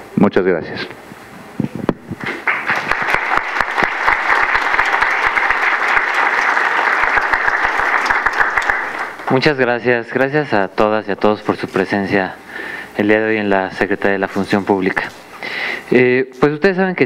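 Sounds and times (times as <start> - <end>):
audience applauding: 2.3 - 9.8.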